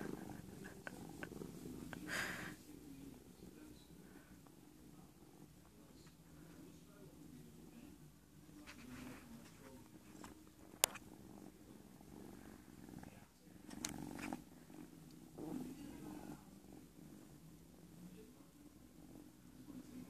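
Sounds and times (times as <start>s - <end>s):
cat purring: 0.0s - 20.0s.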